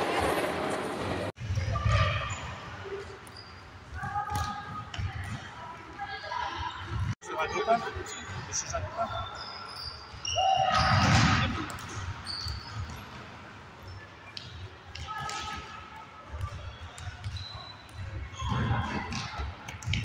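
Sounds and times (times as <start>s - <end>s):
shoes squeaking: 1.6s - 15.6s.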